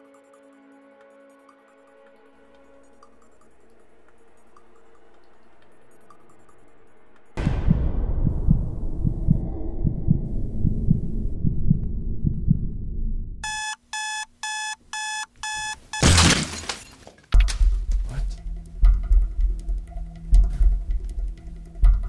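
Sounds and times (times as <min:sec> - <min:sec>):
low rumble with soft thuds: 0:07.4 - 0:13.4
alarm clock beeping: 0:13.4 - 0:16.0.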